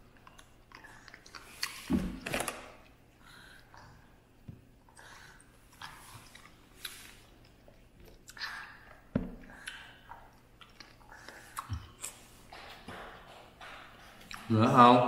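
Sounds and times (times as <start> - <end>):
person chewing food: 0.0 - 1.9, 2.8 - 12.6.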